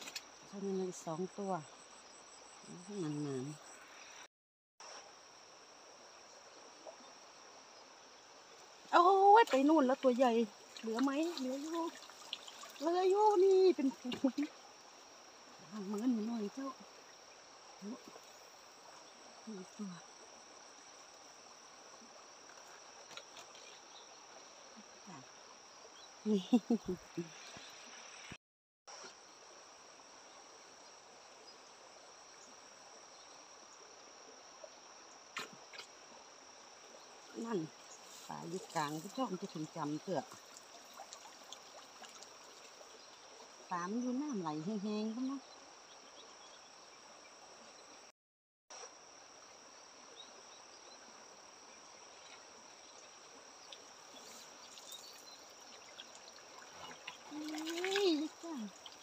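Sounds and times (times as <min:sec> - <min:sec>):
water drips and splashes: 0:08.4 - 0:19.4, 0:21.9 - 0:24.4, 0:36.8 - 0:43.6, 0:52.1 - 0:59.0
high-pitched insect trill: 0:29.0 - 0:48.1, 0:48.8 - 0:59.0.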